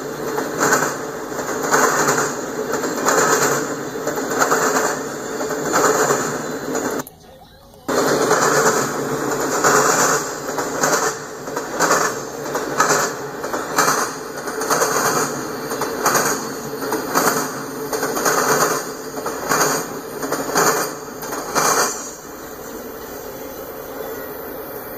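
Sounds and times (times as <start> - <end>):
train wheels clacking over rail joints: 0.0 - 7.0, 7.9 - 24.9
steady hiss: 7.8 - 24.9.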